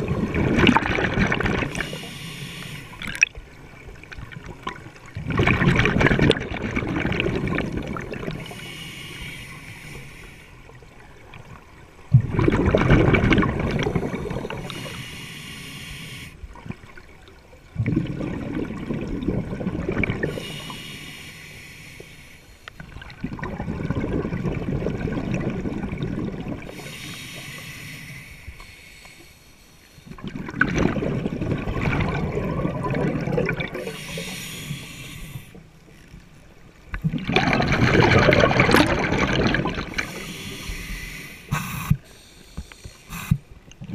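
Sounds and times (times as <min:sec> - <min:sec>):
regulator inhale hiss: 0:01.7 - 0:03.0, 0:08.4 - 0:10.7, 0:14.0 - 0:16.4, 0:20.3 - 0:22.8, 0:26.7 - 0:30.1, 0:33.8 - 0:35.6, 0:39.9 - 0:43.5
exhaust bubbles bursting: 0:12.1 - 0:14.6, 0:30.2 - 0:33.9, 0:37.0 - 0:40.0.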